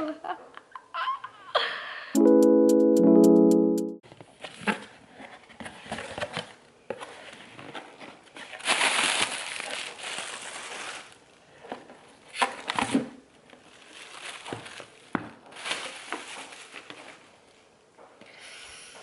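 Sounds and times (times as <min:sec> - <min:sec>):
plastic packaging crinkling: 0:08.4 - 0:11.4, 0:13.4 - 0:17.4.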